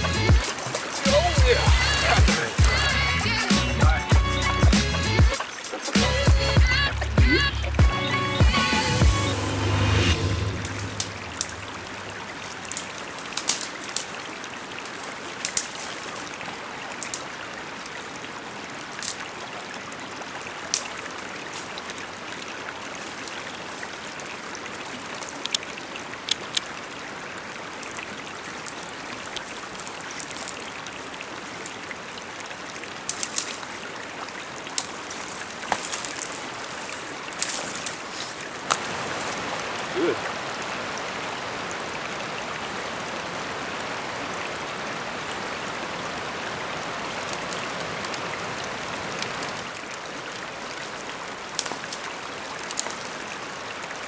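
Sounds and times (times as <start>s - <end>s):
river water rushing: 0.0s - 54.0s
twigs snapping underfoot: 10.6s - 11.6s, 12.4s - 16.4s, 17.0s - 17.3s, 18.9s - 19.3s, 24.9s - 26.7s, 27.8s - 31.8s, 33.0s - 39.4s, 47.1s - 47.9s, 50.8s - 53.1s.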